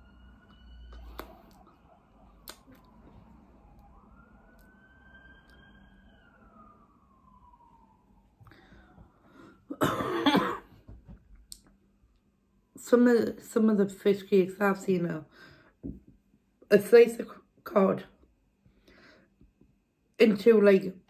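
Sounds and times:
emergency vehicle siren wailing: 0.0 - 9.7.

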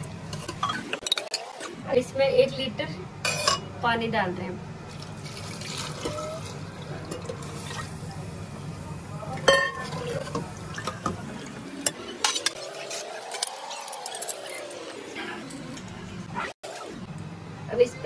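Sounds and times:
water pouring into a pot: 4.9 - 8.0.

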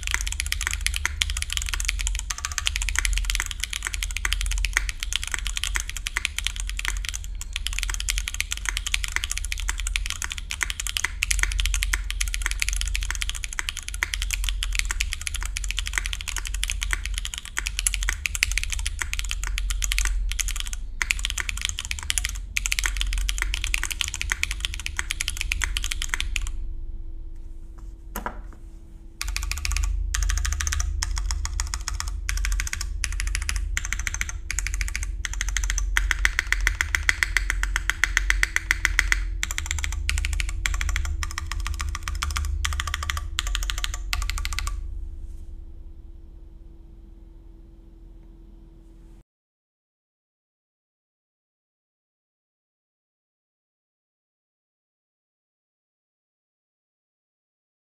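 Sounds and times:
mechanical keyboard typing: 0.0 - 26.6, 29.2 - 44.8.

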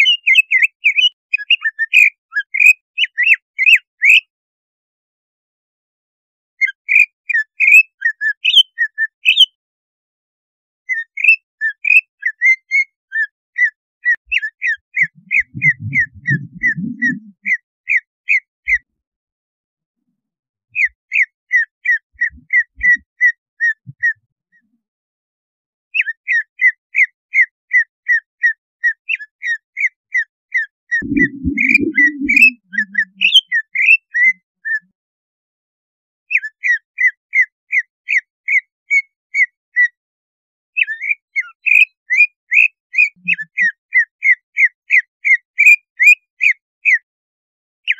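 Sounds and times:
bird whistled song: 0.0 - 4.3, 6.6 - 9.6, 10.9 - 18.9, 20.8 - 24.7, 26.0 - 34.9, 36.3 - 40.0, 40.8 - 47.0
low rumbling noise: 15.1 - 17.4, 31.0 - 33.0.

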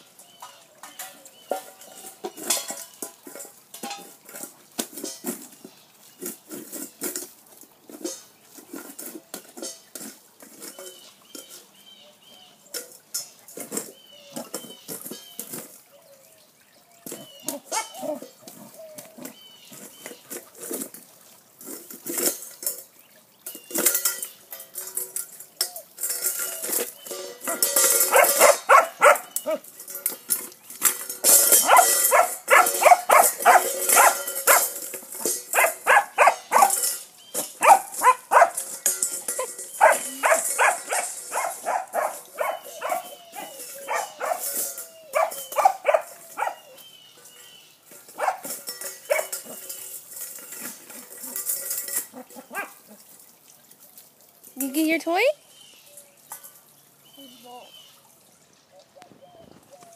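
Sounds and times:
puppy barking: 28.1 - 29.6, 31.6 - 34.7, 35.6 - 36.8, 37.6 - 38.6, 39.8 - 44.5, 45.2 - 46.8, 48.2 - 48.5, 52.5 - 52.8.

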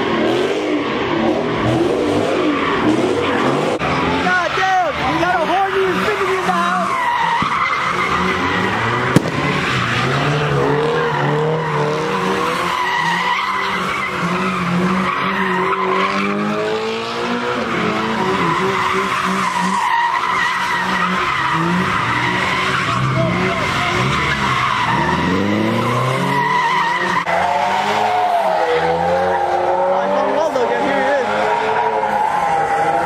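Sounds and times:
car engine revving hard: 0.0 - 33.0
tyres squealing: 2.5 - 16.5, 17.2 - 33.0
sharp crack: 9.1 - 10.0.

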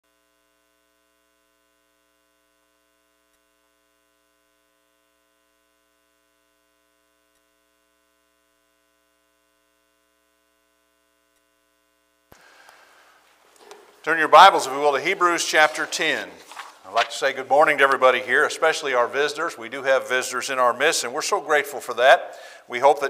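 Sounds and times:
faint electrical hum: 0.1 - 23.0
faint ticks: 3.2 - 3.6.

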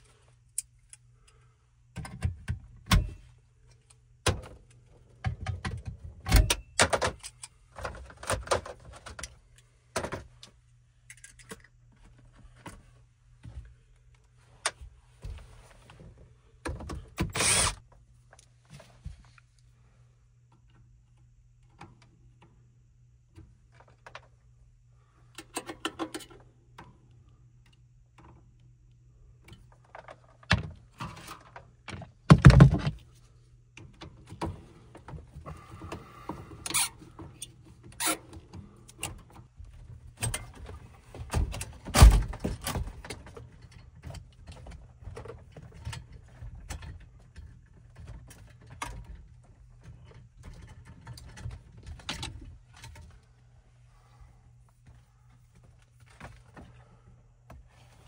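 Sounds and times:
screwdriver clicking and scraping: 17.3 - 17.8.

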